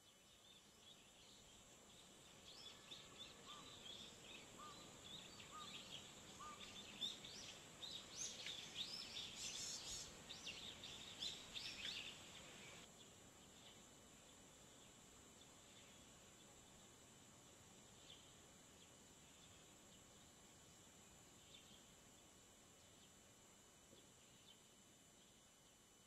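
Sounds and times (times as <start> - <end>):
small birds twittering: 0.0 - 17.1, 17.8 - 26.0
faint steady high hiss: 0.0 - 26.0.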